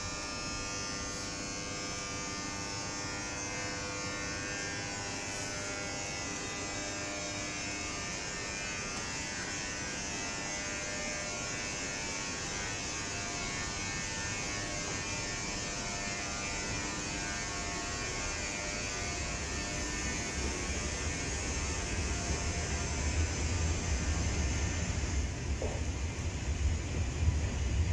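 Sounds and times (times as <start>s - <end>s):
electrical buzz and hum: 0.0s - 27.9s.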